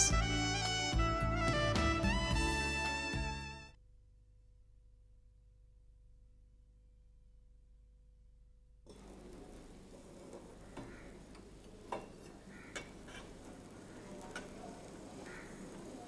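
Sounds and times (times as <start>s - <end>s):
faint steady hiss: 8.9s - 16.0s
metal pots clinking: 8.9s - 16.0s.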